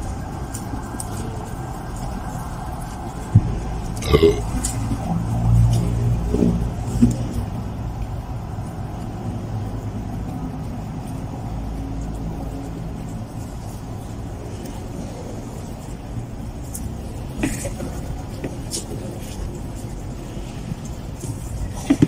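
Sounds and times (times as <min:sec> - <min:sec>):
low engine-like rumble: 0:00.0 - 0:22.0
mouth noises from eating: 0:02.5 - 0:07.5.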